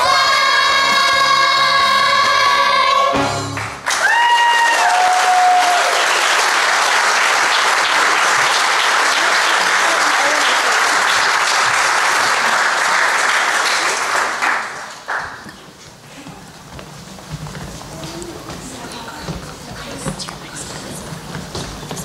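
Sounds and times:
audience applauding: 3.5s - 15.7s.

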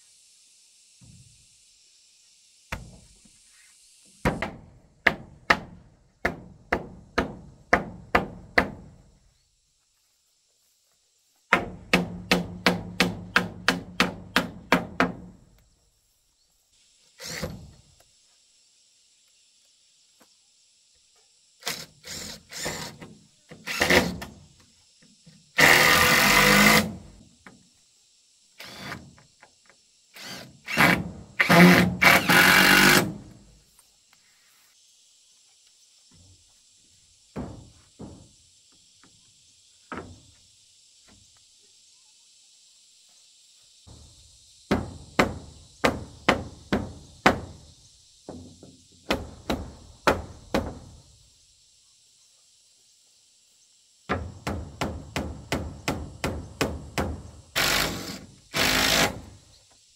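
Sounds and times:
cordless drill driving screws: 25.6s - 27.0s, 30.2s - 33.2s, 57.6s - 59.3s.

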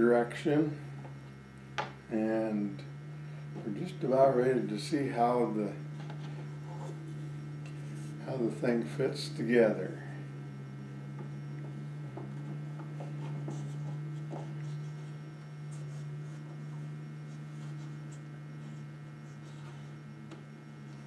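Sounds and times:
low mains hum: 0.0s - 21.0s.

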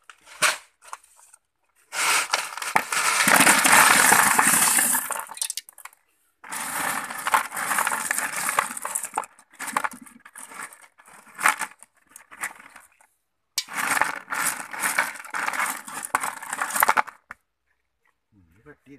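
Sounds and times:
gravel crunching in plastic basin: 1.8s - 13.0s, 13.6s - 17.4s.

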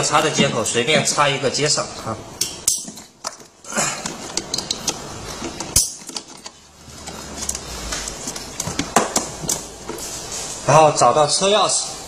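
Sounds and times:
wires rustling: 2.6s - 11.1s.

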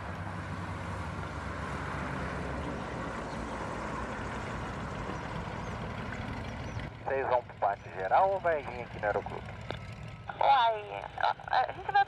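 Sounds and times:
twin piston engines running: 2.6s - 12.0s.

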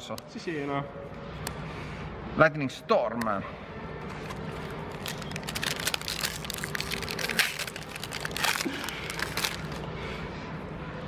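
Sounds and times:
card packaging crinkling: 4.5s - 9.9s.

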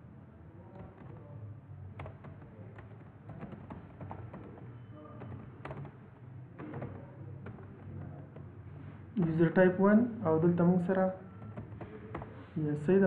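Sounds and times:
computer keyboard typing: 1.9s - 8.5s, 10.9s - 12.5s.

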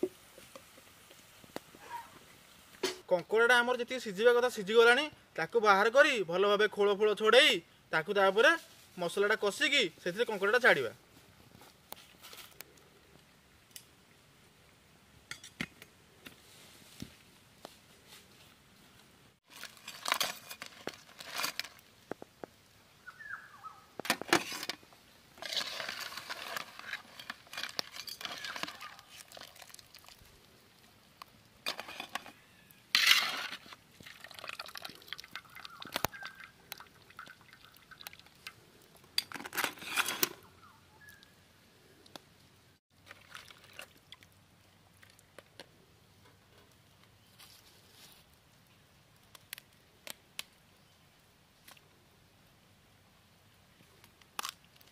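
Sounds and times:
water splashing: 34.0s - 38.5s, 43.0s - 44.4s
crab shell cracking: 54.1s - 54.9s.

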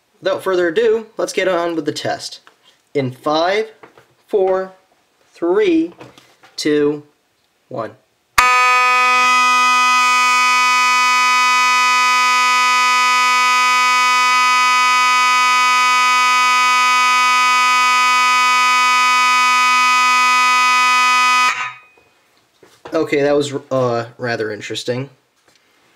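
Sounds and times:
fire alarm horn buzzing: 8.4s - 22.0s.

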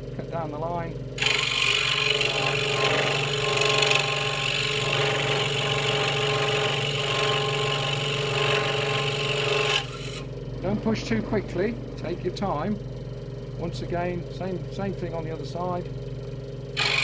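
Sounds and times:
scroll saw cutting wood: 1.2s - 10.3s, 16.8s - 17.0s
saw motor hum: 1.2s - 12.8s, 16.7s - 17.0s.

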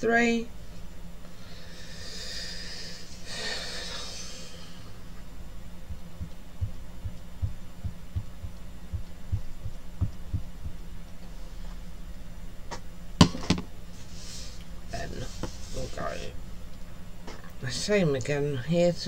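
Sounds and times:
steady low hum: 0.0s - 19.0s
soft low thumps: 4.9s - 11.2s.

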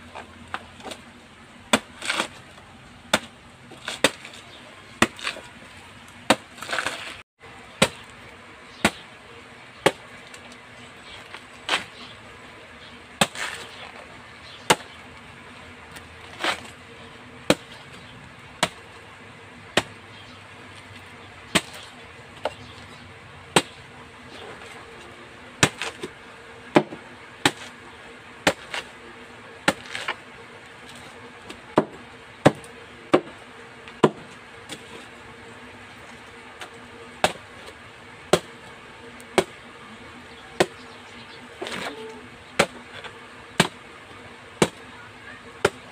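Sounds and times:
knife chopping banana trunk: 1.7s - 2.4s, 3.1s - 5.6s, 6.2s - 7.2s, 7.8s - 8.2s, 8.8s - 9.1s, 9.8s - 10.2s, 11.2s - 12.0s, 13.2s - 14.0s, 14.6s - 15.0s, 15.9s - 16.8s, 17.4s - 17.9s, 18.6s - 18.9s, 19.7s - 20.0s, 21.5s - 22.8s, 23.5s - 23.8s, 25.6s - 27.8s, 28.4s - 28.9s, 29.6s - 30.2s, 30.8s - 35.0s, 36.6s - 38.6s, 39.3s - 39.6s, 40.5s - 40.9s, 41.6s - 43.9s, 44.6s - 44.9s, 45.6s - 45.9s.

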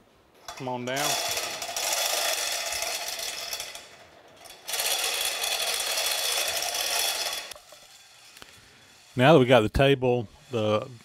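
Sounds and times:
chain hoist running: 0.5s - 9.2s.

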